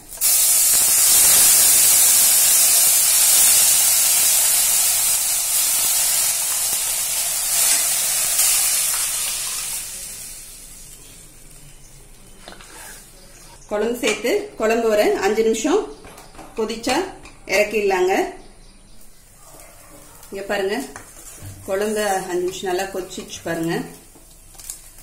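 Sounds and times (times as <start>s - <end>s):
hot oil sizzling and hissing: 0.0s - 11.6s.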